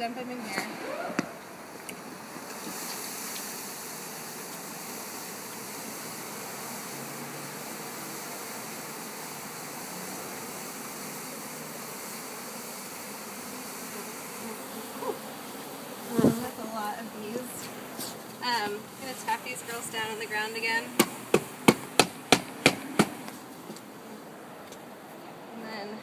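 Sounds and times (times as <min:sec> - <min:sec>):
bees buzzing: 0:00.0 - 0:26.0
sharp thump: 0:21.0 - 0:23.4.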